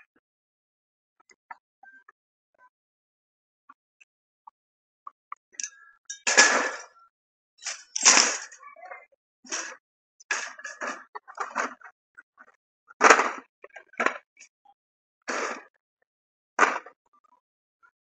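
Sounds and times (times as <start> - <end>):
shopping cart rattling: 7.6 - 8.6.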